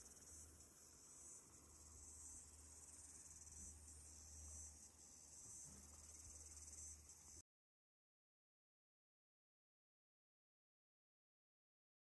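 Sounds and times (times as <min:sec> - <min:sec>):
insects chirring: 0:00.0 - 0:07.4.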